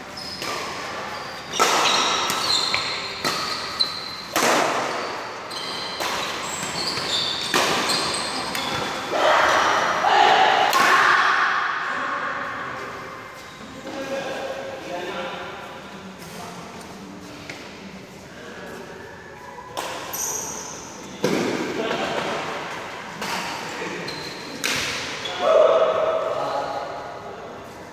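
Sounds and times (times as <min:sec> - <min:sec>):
shoes squeaking on court floor: 0:00.0 - 0:09.1, 0:13.3 - 0:14.1, 0:18.6 - 0:21.2, 0:23.2 - 0:25.4
rackets hitting shuttlecock: 0:00.4 - 0:05.0, 0:05.7 - 0:09.6, 0:24.5 - 0:25.2.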